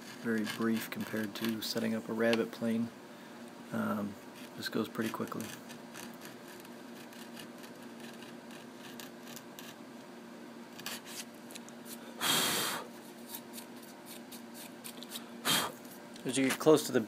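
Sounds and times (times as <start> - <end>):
plane blade scraping wood: 0.0 - 1.7
steady low hum: 0.0 - 17.0.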